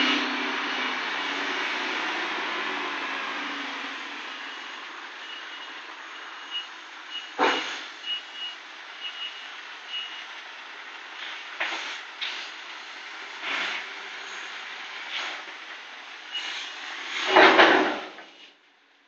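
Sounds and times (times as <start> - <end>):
reversing alarm beeps: 0.0 - 1.2, 4.2 - 10.3.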